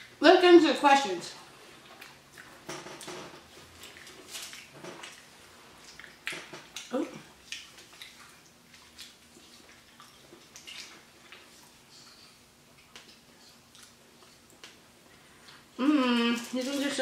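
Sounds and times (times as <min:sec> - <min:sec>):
chewing mouth smacks: 0:01.8 - 0:03.1, 0:03.8 - 0:14.8.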